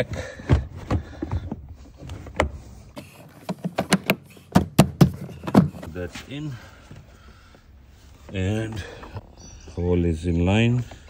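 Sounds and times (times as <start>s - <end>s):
seat trim clicking and knocking: 0.4s - 5.8s.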